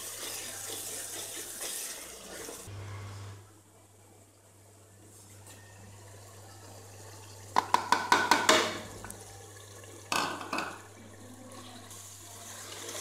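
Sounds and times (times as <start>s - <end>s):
wooden spoon knocking on pot: 7.6s - 8.9s.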